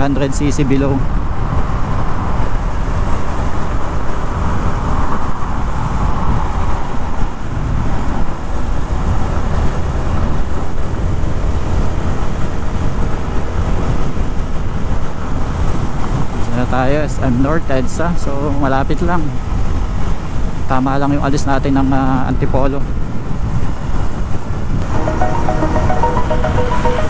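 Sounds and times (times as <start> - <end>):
traffic: 0.0 - 17.5
wind and road noise: 0.0 - 24.9.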